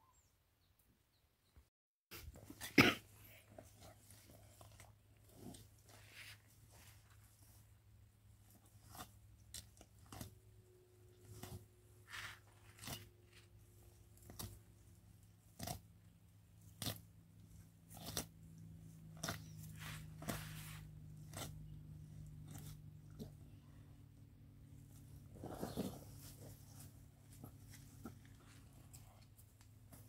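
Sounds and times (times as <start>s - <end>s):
crunching and ripping flesh: 8.8s - 10.4s, 11.2s - 13.4s, 15.4s - 15.9s, 16.6s - 17.1s, 17.9s - 18.4s, 19.1s - 21.7s.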